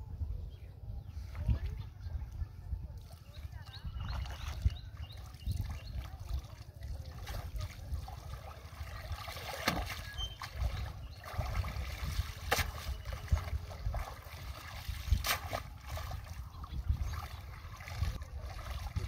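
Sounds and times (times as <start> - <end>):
water splashing and dripping: 4.0 - 19.0
sharp splashes: 6.0 - 19.0.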